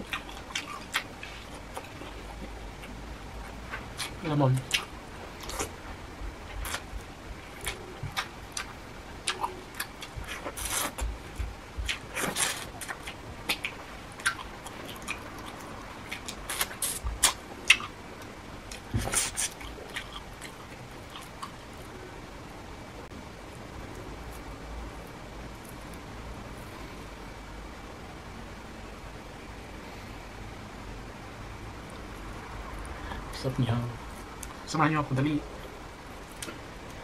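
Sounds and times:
chewing and lip smacks: 0.0s - 5.8s, 6.5s - 21.6s.

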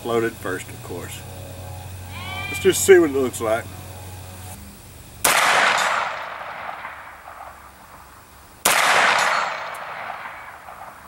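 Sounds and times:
gunshot with echo: 5.2s - 7.6s, 8.6s - 11.0s.

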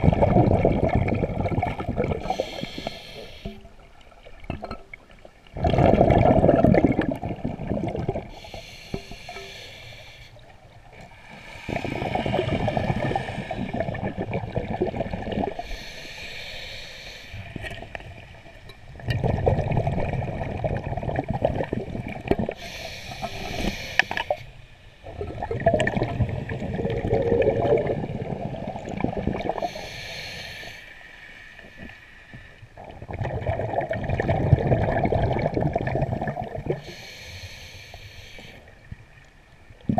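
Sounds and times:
exhaled air bubbling: 0.0s - 16.8s, 17.4s - 24.4s, 25.0s - 30.5s, 32.6s - 37.2s
regulator inhale hiss: 2.2s - 3.8s, 8.3s - 14.2s, 15.6s - 17.8s, 22.5s - 25.1s, 29.4s - 32.6s, 36.7s - 38.8s.

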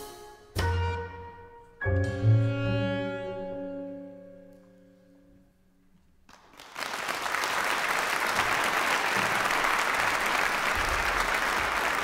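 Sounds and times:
audience applause: 6.3s - 12.0s.

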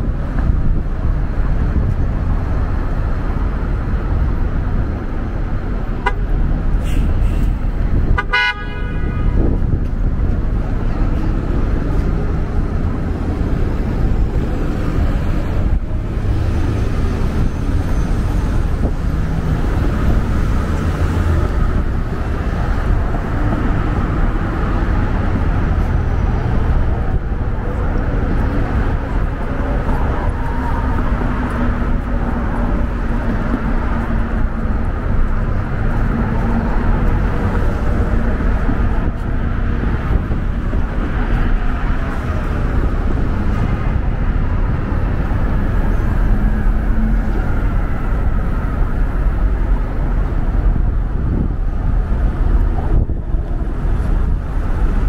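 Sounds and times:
traffic rumble: 0.0s - 55.0s
car horn honk: 8.1s - 9.4s.

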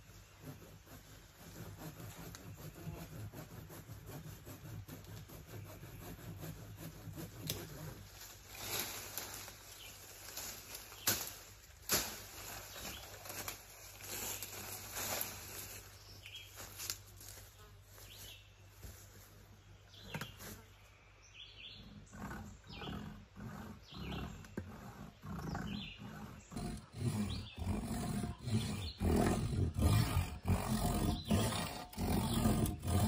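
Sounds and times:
low rough rasp: 0.0s - 11.2s, 21.7s - 33.0s
branches rustling and swishing: 7.2s - 19.5s
twigs snapping: 10.4s - 13.6s.

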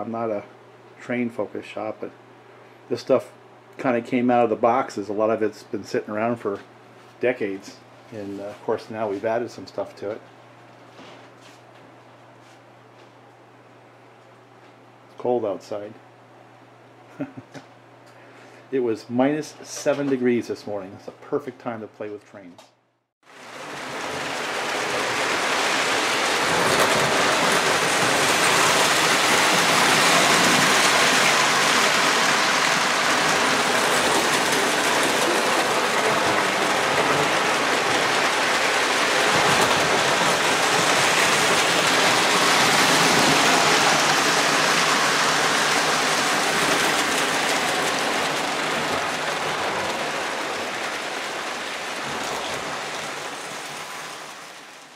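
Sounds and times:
model train rumbling: 23.3s - 54.9s.

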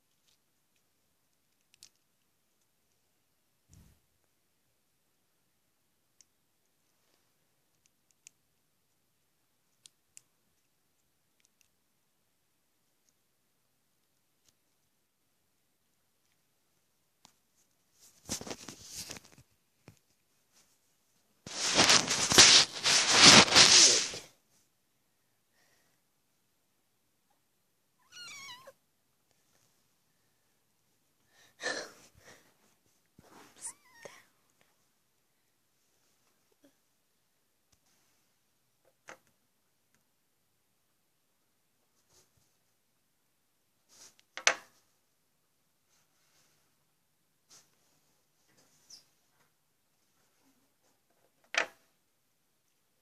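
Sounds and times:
cat meowing: 28.0s - 28.8s.

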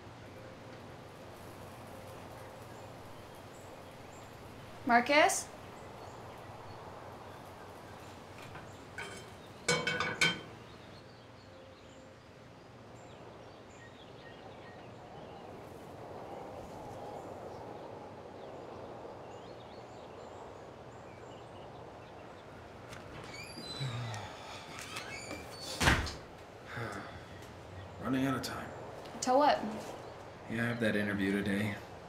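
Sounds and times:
faint bird chirps: 23.2s - 25.8s.

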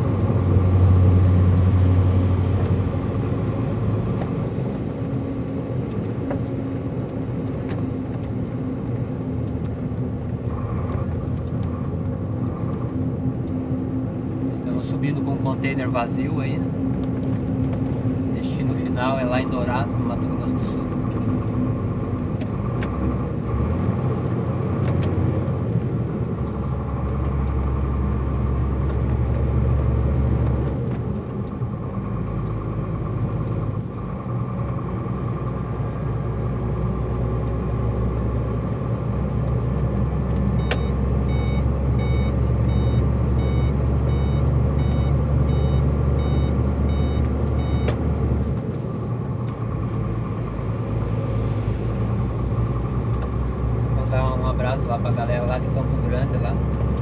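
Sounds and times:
diesel engine droning: 0.0s - 57.0s
short electronic beeps: 40.6s - 47.9s.

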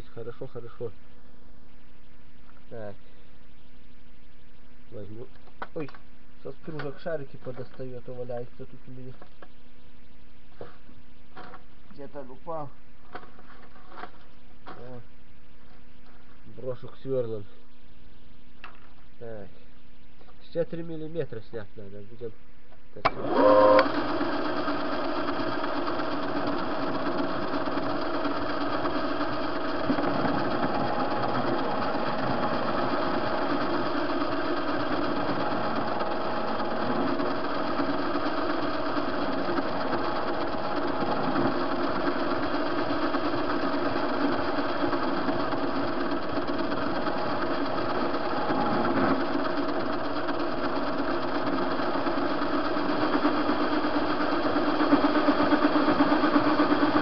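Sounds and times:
cutting tool turning rod: 23.1s - 57.0s
metal lathe gear whine: 23.1s - 57.0s.

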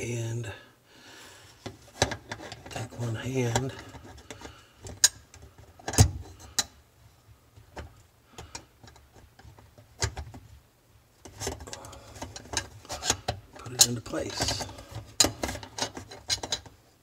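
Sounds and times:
metal clicks and knocks: 11.2s - 16.8s.

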